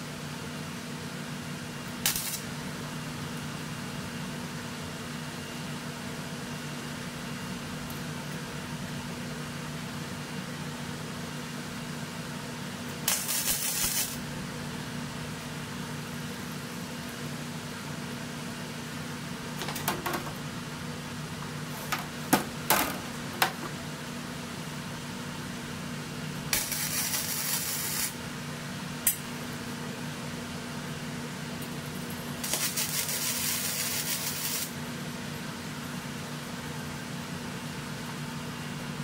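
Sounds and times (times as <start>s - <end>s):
arc welder buzzing: 1.7s - 3.4s, 13.0s - 14.6s, 26.4s - 28.4s, 32.3s - 34.8s.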